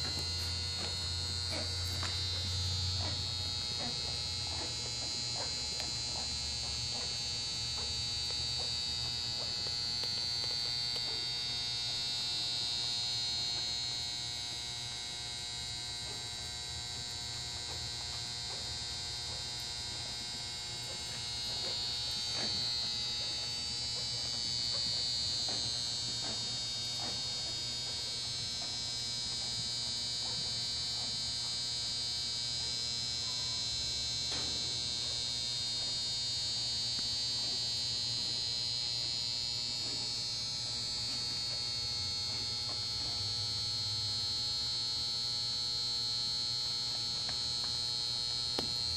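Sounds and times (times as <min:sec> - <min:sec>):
electrical buzz and hum: 0:00.0 - 0:48.9.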